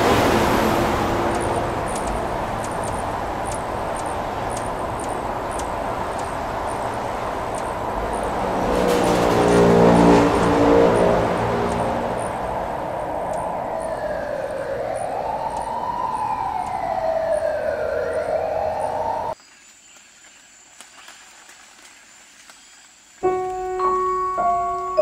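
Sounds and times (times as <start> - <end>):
passing cars: 0.0 - 19.4.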